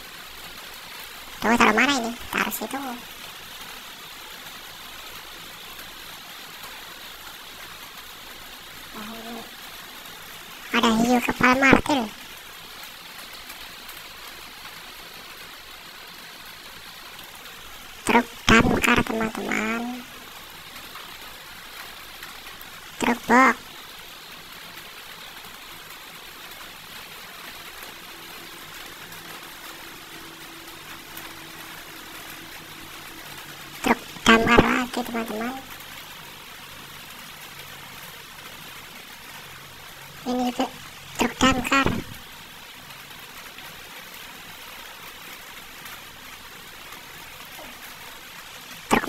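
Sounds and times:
steady background hiss: 0.0 - 49.0.

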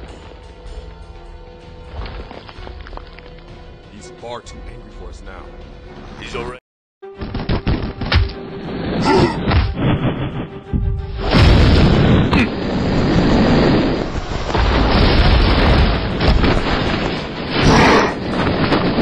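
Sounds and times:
soundtrack music: 0.0 - 14.2
explosion-like crash: 7.2 - 19.0.

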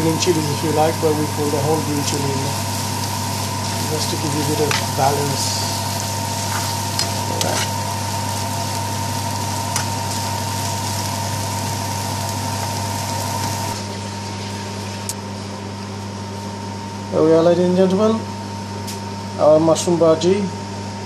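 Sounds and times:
food sizzling in a frying pan: 0.0 - 15.1
steady low hum: 0.0 - 21.0.

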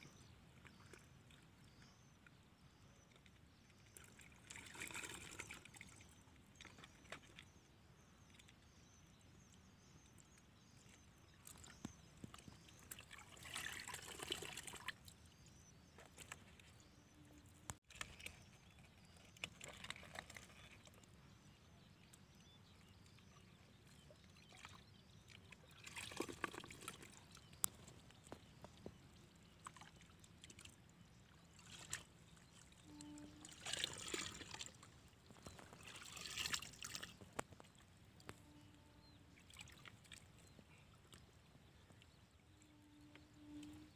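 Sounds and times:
muddy water splashing and pouring: 3.9 - 7.4, 11.4 - 15.2, 25.6 - 28.8, 31.4 - 37.8.

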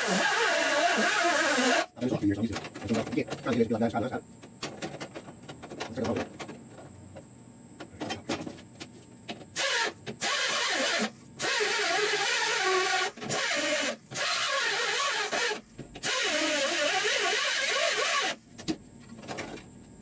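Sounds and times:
power tool on steel: 0.0 - 1.9, 9.6 - 18.4.

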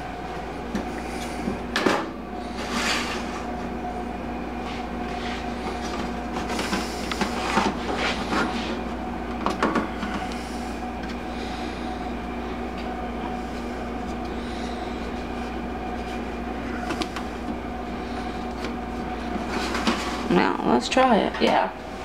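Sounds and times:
steady appliance hum: 0.0 - 22.0.

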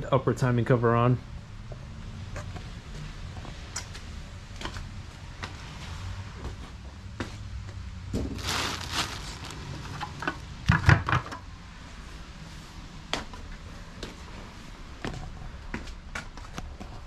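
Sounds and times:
low steady hum: 8.0 - 10.6
rustling of boxes and bags: 8.1 - 10.5.

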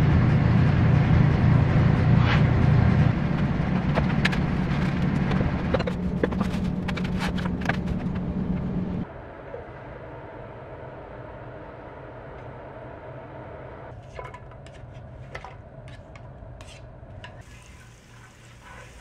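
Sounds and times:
vehicle engine rumble: 0.0 - 9.1.

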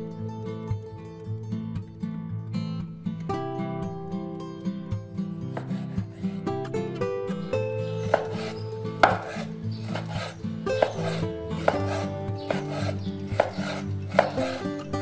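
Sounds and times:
soft background music: 0.0 - 15.0
cleaver chopping on wooden board: 5.6 - 6.4, 7.9 - 15.0.

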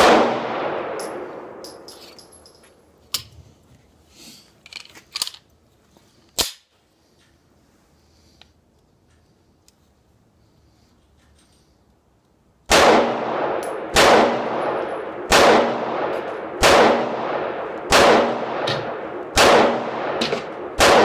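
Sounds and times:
gunshot echo: 0.0 - 1.6, 12.7 - 21.0
pistol reloading clicks: 13.6 - 13.8.

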